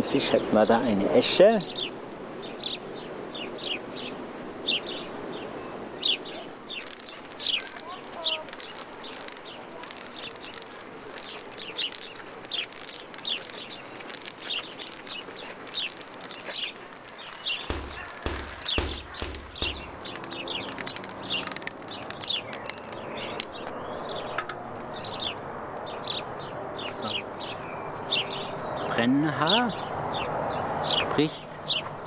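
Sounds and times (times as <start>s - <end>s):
small bird chirping: 4.7s - 24.4s.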